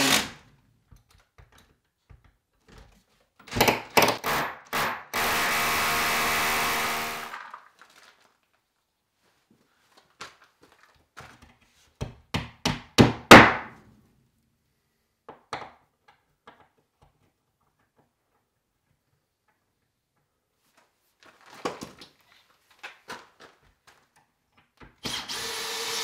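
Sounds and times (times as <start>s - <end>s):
power tool winding down: 0.0s - 0.4s, 5.2s - 7.5s, 25.0s - 26.0s.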